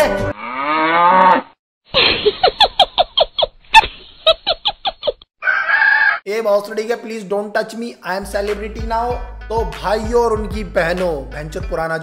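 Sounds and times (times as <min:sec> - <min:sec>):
woman laughing: 0:02.0 - 0:05.3.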